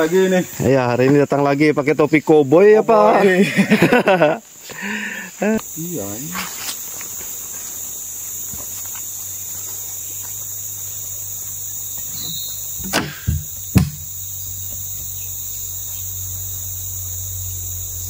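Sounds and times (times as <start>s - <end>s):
insect chorus: 0.0s - 18.0s
sharp knocks: 12.8s - 14.8s.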